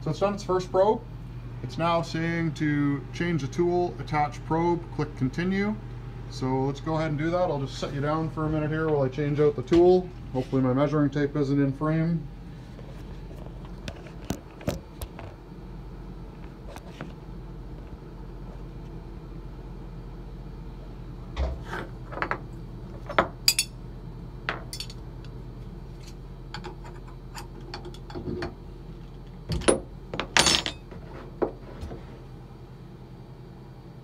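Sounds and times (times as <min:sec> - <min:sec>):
steady low hum: 0:00.0 - 0:34.0
metal tools clicking and clinking: 0:23.5 - 0:23.7, 0:24.7 - 0:25.0.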